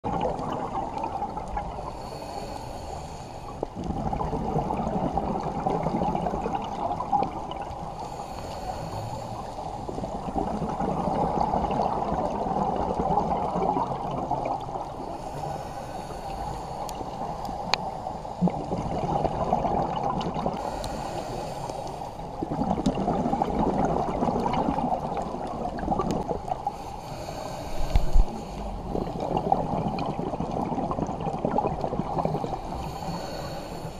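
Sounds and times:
exhaled bubbles gurgling underwater: 0.0 - 33.9
regulator inhalation hiss: 1.9 - 3.6, 7.9 - 10.0, 15.0 - 18.4, 20.6 - 22.2, 26.7 - 29.2, 32.5 - 33.9.

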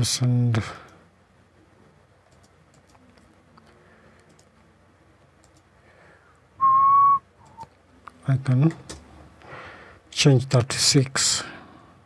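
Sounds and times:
mouse and keyboard clicks: 2.2 - 4.5.

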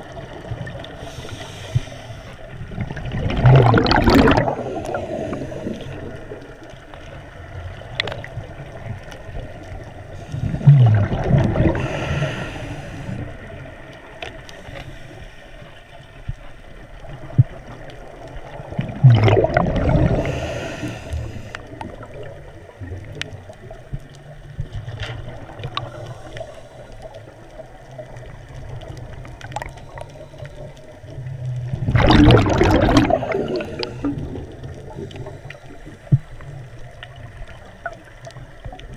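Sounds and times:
steady water hiss: 0.0 - 38.9
air bubbling underwater: 2.7 - 6.3, 10.4 - 12.0, 18.7 - 20.4, 31.7 - 35.0.

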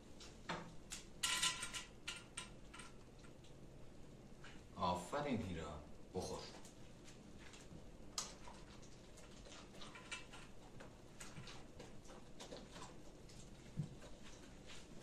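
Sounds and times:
dog clicks on tiled floor: 7.5 - 14.7.

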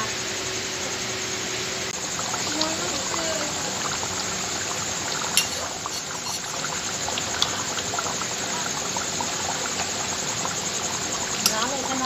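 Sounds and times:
steady hiss: 0.0 - 12.0
liquid pouring and sloshing: 2.0 - 12.0
curry stirred and ladled: 5.3 - 7.5
metal ladle clicking against pan: 5.4 - 6.6, 11.4 - 11.7.

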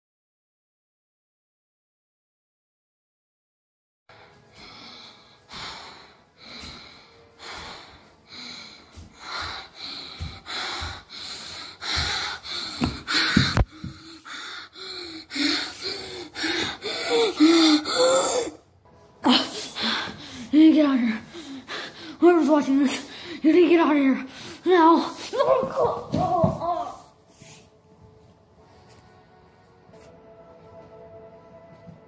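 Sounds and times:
person breathing heavily: 4.1 - 25.5
person whimpering gasps: 9.8 - 18.6.

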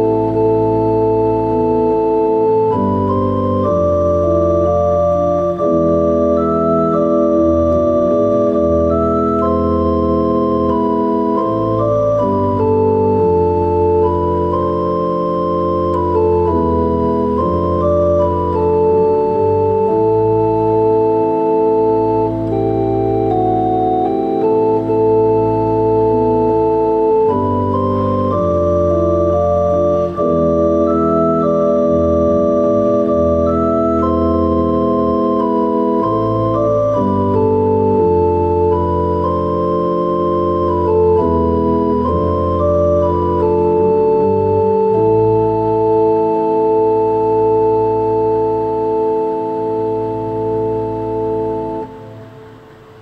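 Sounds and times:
pipe organ playing slow chords: 0.0 - 53.0.

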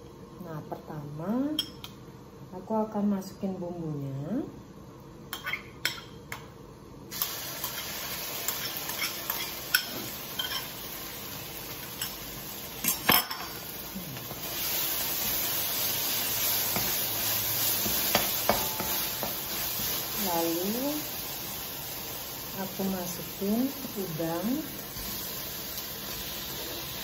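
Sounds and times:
spice paste sizzling in oil: 7.1 - 27.0.

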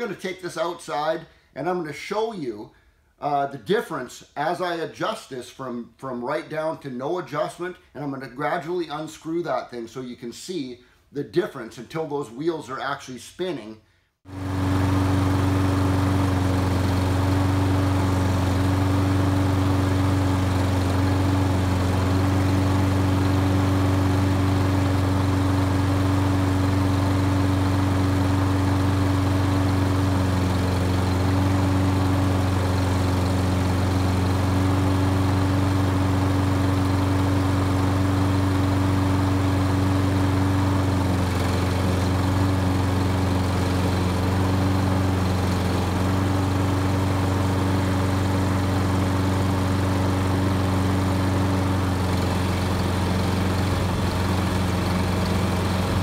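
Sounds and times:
lawn mower engine running: 14.3 - 56.0.

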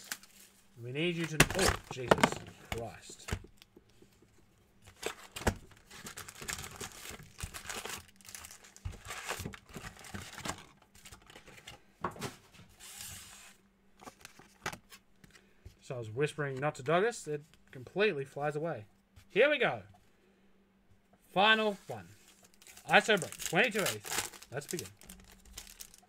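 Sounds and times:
foil packs crinkling: 0.0 - 3.4, 4.8 - 11.6, 22.2 - 26.0.

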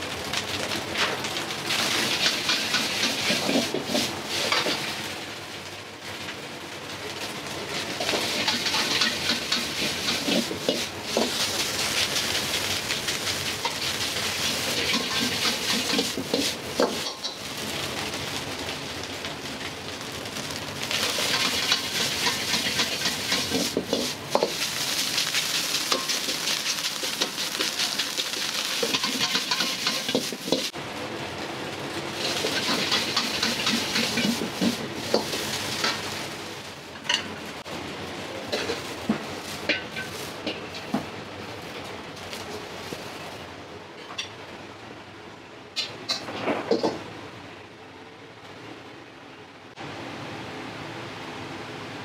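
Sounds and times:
food sizzling in a wok: 0.0 - 44.3, 45.7 - 47.1
metal ladle scraping a pan: 8.0 - 11.4.

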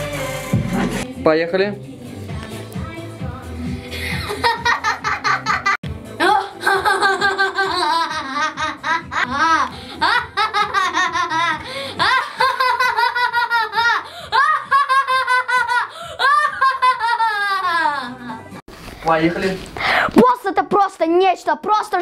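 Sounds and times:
boy laughing: 4.2 - 18.4.

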